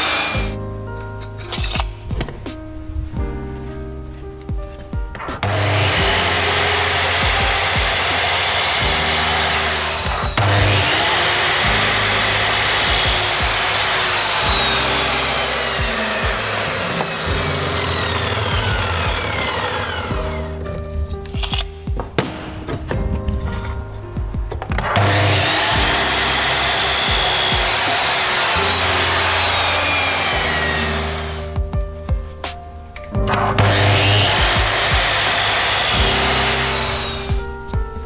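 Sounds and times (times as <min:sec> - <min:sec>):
miter saw cutting wood: 0:00.0 - 0:00.5, 0:05.4 - 0:20.5, 0:24.9 - 0:31.6, 0:33.6 - 0:37.4
background music: 0:00.0 - 0:38.0.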